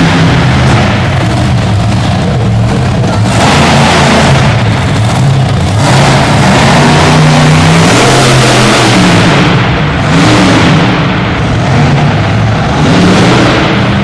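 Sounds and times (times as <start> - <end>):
monster truck engine revving: 0.0 - 14.0.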